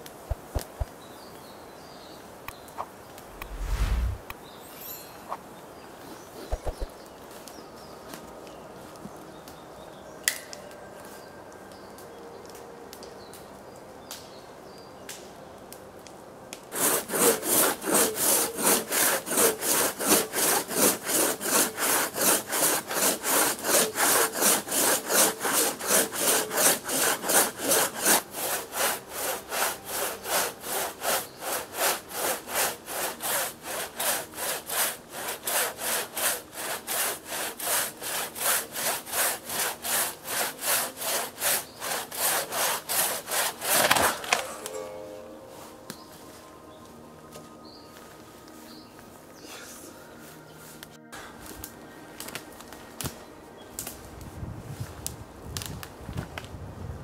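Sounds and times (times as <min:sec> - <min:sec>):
quiet forest background: 0:00.0 - 0:56.6
hand saw cutting log: 0:16.7 - 0:44.6.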